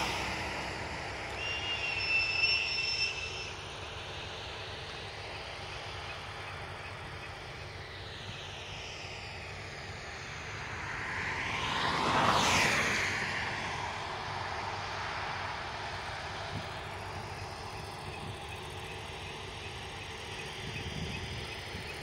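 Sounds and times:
vehicle engine passing by: 0.0 - 2.0, 10.1 - 18.0.

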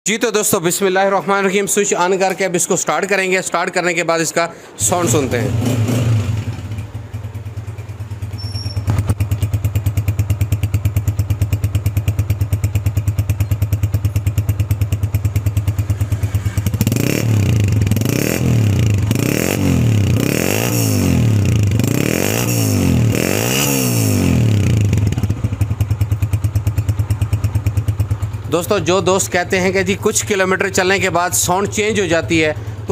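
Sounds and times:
motorcycle engine idling and revving: 4.8 - 32.9.

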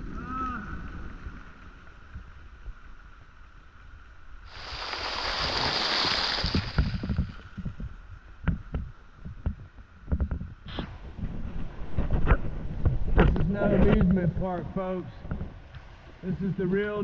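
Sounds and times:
rushing river rumble: 0.0 - 8.2.

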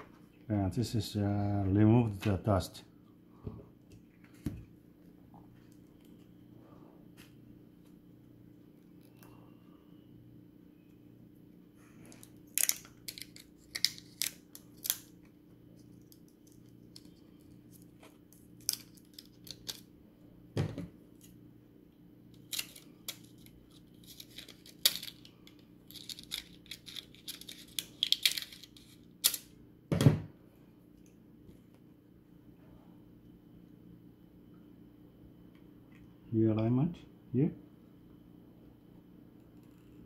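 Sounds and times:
plastic film crackling: 22.4 - 29.1.

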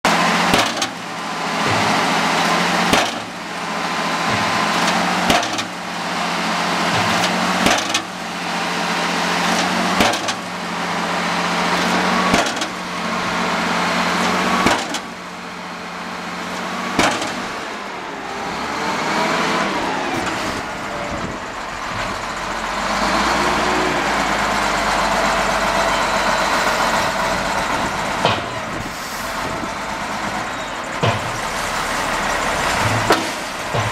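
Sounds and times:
diesel engine running: 0.0 - 33.9
hydraulic ram lifting: 0.1 - 33.9
heavy hammer blows on ground: 27.7 - 33.9.

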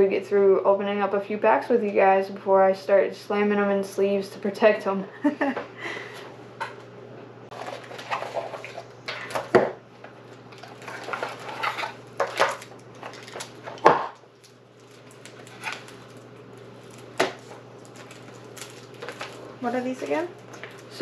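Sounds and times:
cards and foil pack rustling: 7.5 - 21.0.

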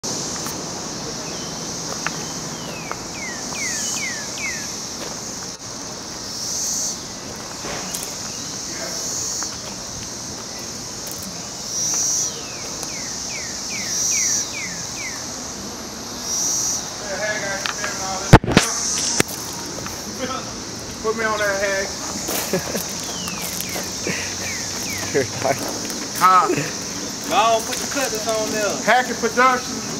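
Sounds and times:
insects trilling: 0.0 - 29.9
bird whistling: 2.6 - 4.7, 12.4 - 15.2, 23.0 - 25.2.

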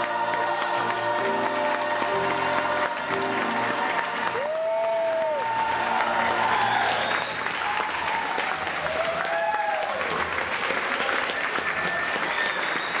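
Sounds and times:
audience clapping: 0.0 - 13.0
long whoops: 4.4 - 10.0.

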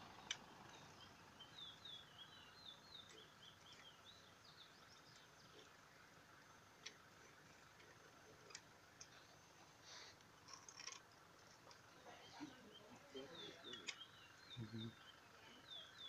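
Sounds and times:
faint bird chirps: 0.1 - 6.2, 11.7 - 16.0.

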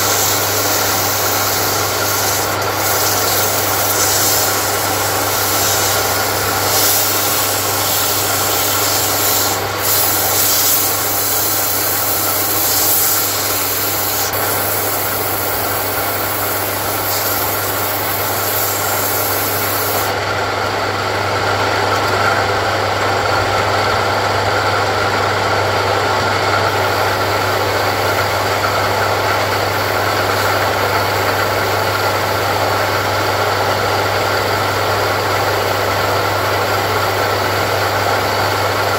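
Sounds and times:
sandpaper rubbing on spinning wood: 0.0 - 20.2
lathe motor humming: 0.0 - 38.9.

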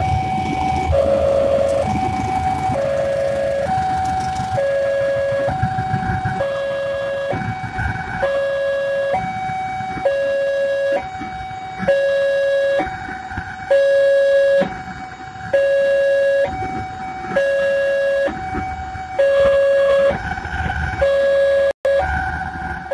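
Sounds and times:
train rumbling past: 0.0 - 6.5
two-tone crossing alarm: 0.0 - 22.9.

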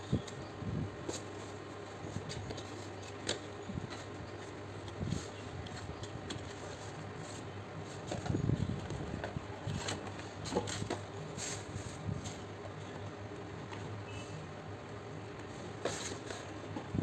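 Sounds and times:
steady low hum: 0.0 - 17.0
cardboard boxes tapping and rubbing: 1.0 - 12.4, 15.7 - 17.0.

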